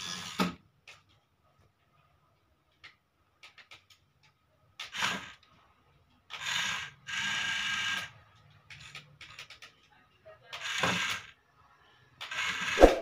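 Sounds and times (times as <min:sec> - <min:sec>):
toy motor and gears whirring: 0:00.0 - 0:00.5, 0:04.8 - 0:05.4, 0:06.3 - 0:09.7, 0:10.5 - 0:11.4, 0:12.2 - 0:12.8
brief scrape: 0:12.8 - 0:13.0.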